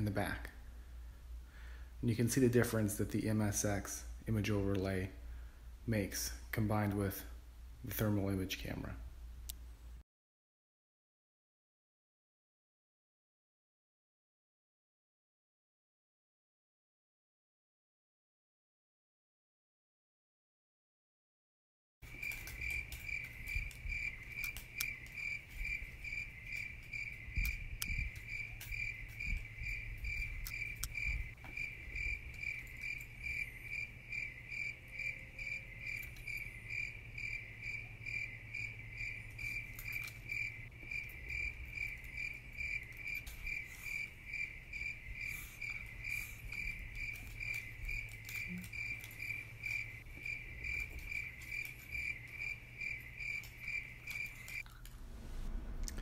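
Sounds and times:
cricket chirping: 22.0s - 55.7s
low hum: 53.8s - 56.0s.

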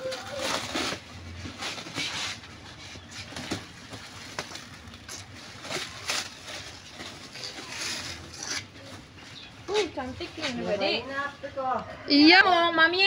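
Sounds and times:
plastic wrap crinkling: 0.0s - 9.2s
scissors cutting plastic: 5.1s - 8.7s.

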